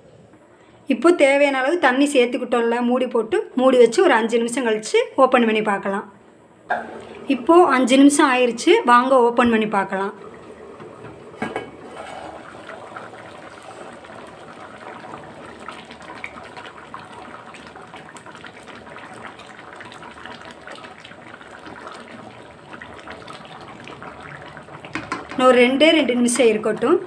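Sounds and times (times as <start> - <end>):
sauce simmering and bubbling: 6.8 - 7.7, 10.2 - 26.6.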